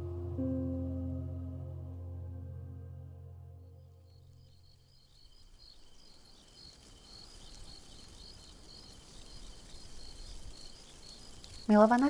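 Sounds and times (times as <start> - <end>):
soft music: 0.0 - 4.6
crickets chirping: 3.8 - 12.0
faint background hiss: 3.8 - 12.0.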